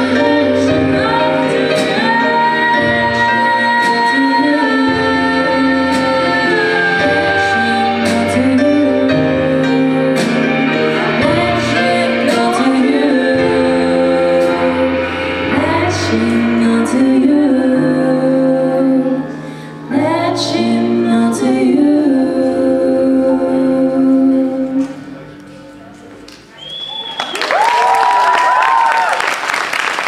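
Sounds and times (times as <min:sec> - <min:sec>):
drums: 0:00.0 - 0:17.6
women singing a pop ballad: 0:00.0 - 0:25.3
piano chords: 0:00.0 - 0:26.6.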